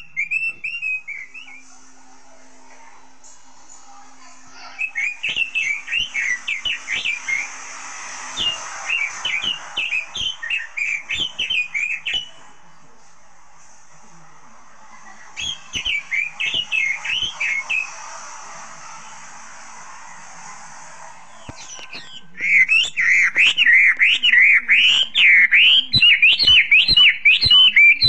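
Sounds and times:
bird warbling whistles: 0.0 - 1.6, 4.7 - 12.5, 15.4 - 18.4, 21.4 - 28.0.

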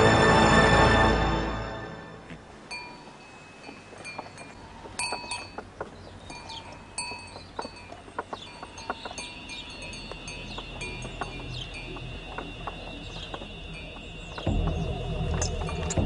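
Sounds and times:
small bells ringing: 2.7 - 5.6, 6.2 - 14.4.

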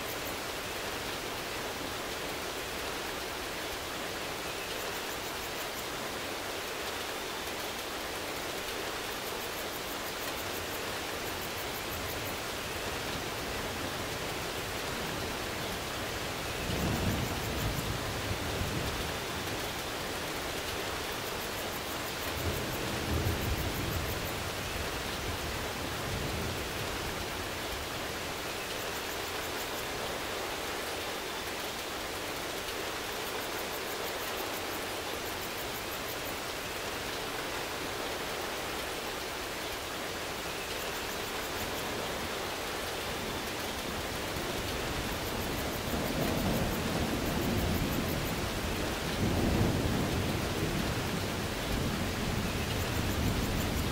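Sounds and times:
steady rain: 0.0 - 53.9
thunder rumbles: 44.1 - 53.9.

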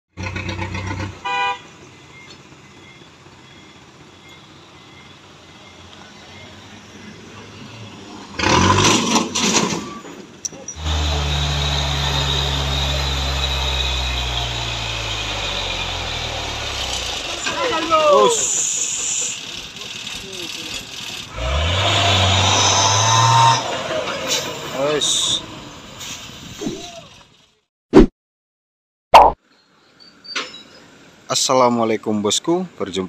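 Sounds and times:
truck diesel engine labouring: 0.2 - 27.6
horn toot: 1.2 - 1.7.

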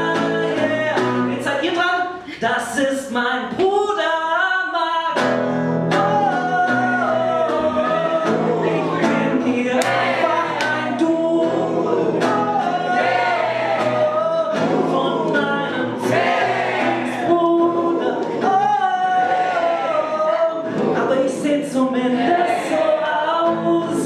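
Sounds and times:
acoustic guitar strumming: 0.0 - 2.2, 5.0 - 24.0
man singing: 0.0 - 24.0.

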